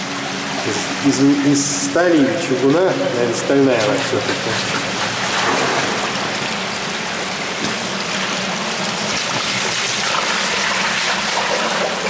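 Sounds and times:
water rushing through metal pipe: 0:00.0 - 0:12.0.

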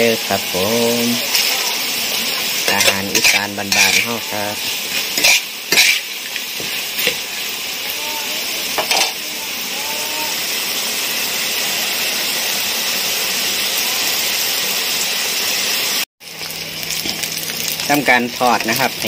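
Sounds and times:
beetles sizzling in oil: 0:00.0 - 0:19.0
spatula striking a wok: 0:05.2 - 0:07.3.

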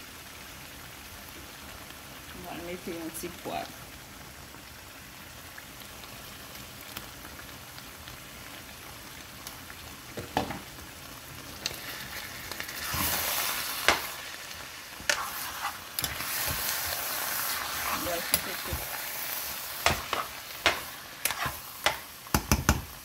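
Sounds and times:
stew sizzling in a pan: 0:00.0 - 0:23.0
spoon stirring stew: 0:14.9 - 0:19.0, 0:19.8 - 0:22.9
spoon knocking against pan: 0:21.8 - 0:23.0.

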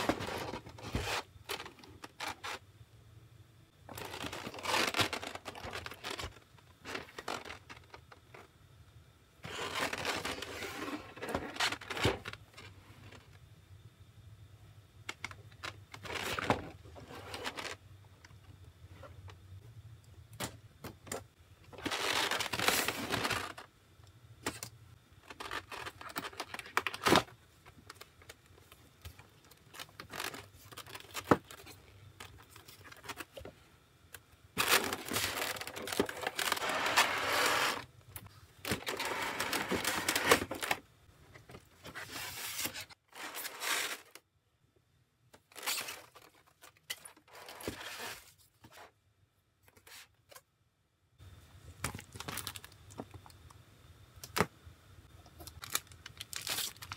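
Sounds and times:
cardboard sliding and rustling: 0:00.0 - 0:02.6, 0:34.6 - 0:37.9, 0:41.8 - 0:44.2.

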